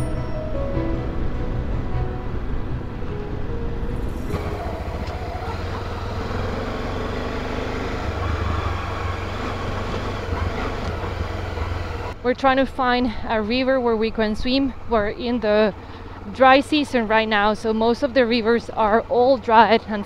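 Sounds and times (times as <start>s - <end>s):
motorcycle engine rumble: 0.0s - 20.0s
road and wind noise: 0.0s - 20.0s.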